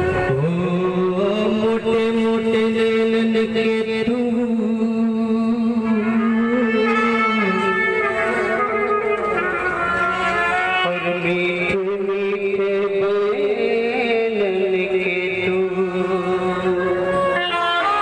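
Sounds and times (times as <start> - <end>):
wedding band playing: 0.0 - 3.6, 5.8 - 11.8
sliding melody of long notes: 0.0 - 18.0.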